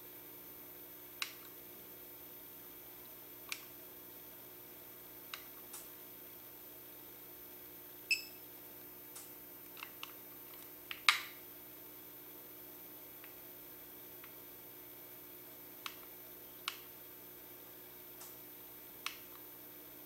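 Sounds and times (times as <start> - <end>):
faint steady hum: 0.0 - 20.0
small clicks and taps: 15.8 - 16.9.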